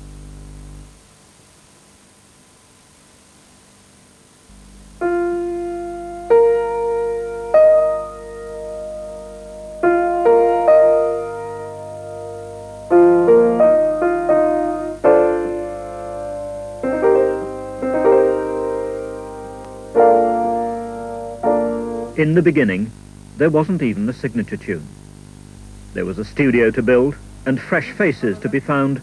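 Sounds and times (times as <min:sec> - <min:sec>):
grand piano played slowly: 0:05.0 - 0:22.3.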